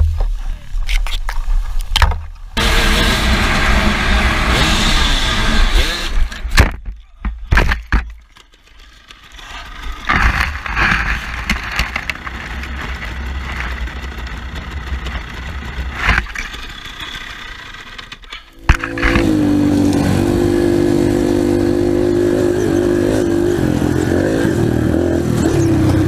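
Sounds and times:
dirt bike engine: 2.0 - 26.0
rustling in dry grass: 9.6 - 14.0.

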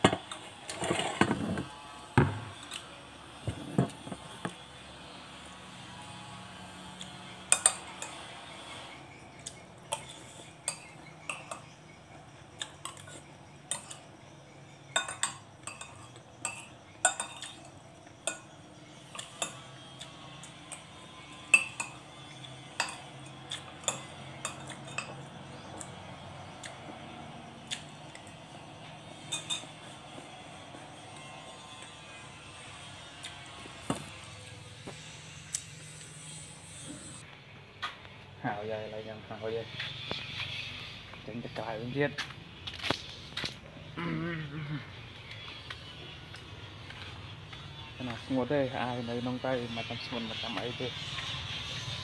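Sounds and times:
cutlery clinking against a dish: 7.5 - 8.3, 9.9 - 11.8, 14.9 - 18.5, 22.7 - 25.2, 29.2 - 29.9.

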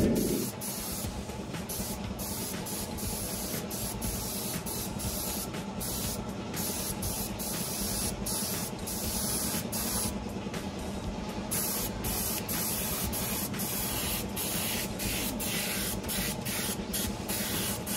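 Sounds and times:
paint spray gun hissing: 0.0 - 10.1, 11.5 - 17.9
low steady hum: 0.0 - 17.9.

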